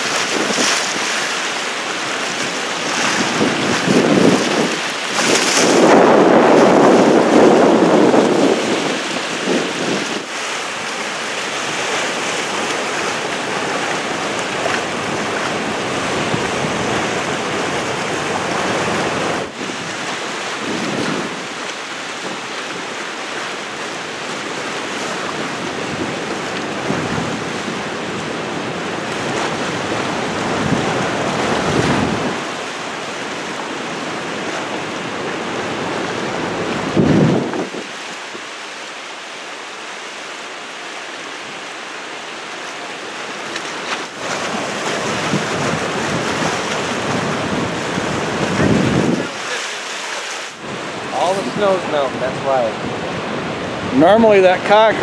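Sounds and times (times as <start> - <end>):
wind on microphone: 0.0 - 1.3, 2.1 - 10.4, 11.6 - 22.9, 25.0 - 38.4, 44.2 - 49.6
river water rushing: 0.0 - 55.0.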